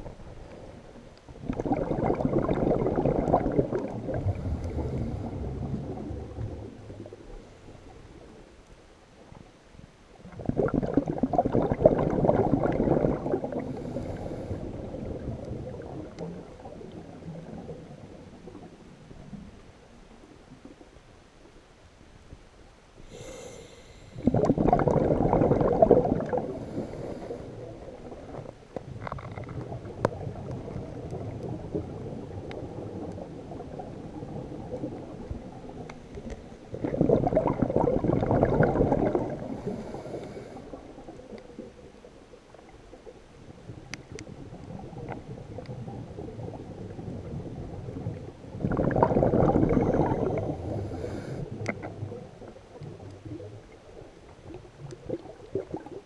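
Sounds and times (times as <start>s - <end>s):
exhaled bubbles gurgling underwater: 0.0s - 8.6s, 10.1s - 21.0s, 23.0s - 56.0s
steady underwater hiss: 0.0s - 56.0s.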